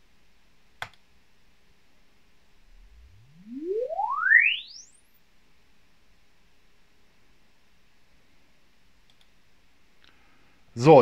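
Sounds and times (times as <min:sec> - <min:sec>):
rising sine sweep tone: 0:02.6 - 0:05.2
mouse click: 0:09.0 - 0:09.3.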